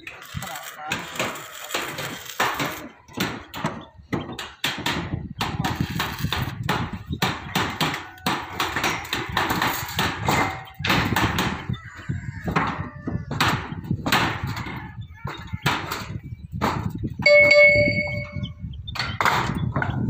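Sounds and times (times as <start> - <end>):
hammer blows on steel sheets: 12.4 - 20.0.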